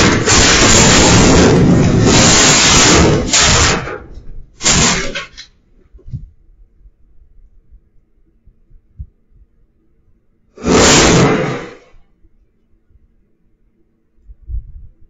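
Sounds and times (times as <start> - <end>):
fire hissing: 0.0 - 4.0, 4.6 - 5.4, 10.5 - 12.0.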